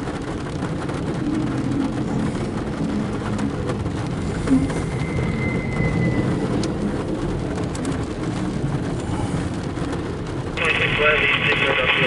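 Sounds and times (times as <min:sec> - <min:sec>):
freight train rumbling past: 0:00.0 - 0:12.0
faint high squeal: 0:04.6 - 0:06.8.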